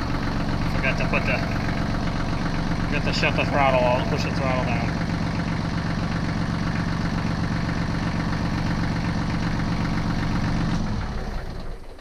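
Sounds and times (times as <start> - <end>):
tractor diesel engine idling: 0.0 - 12.0.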